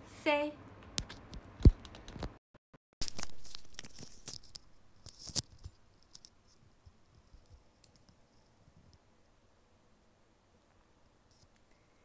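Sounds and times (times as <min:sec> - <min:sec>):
earphones handling clicks and rustling: 0:03.0 - 0:06.6.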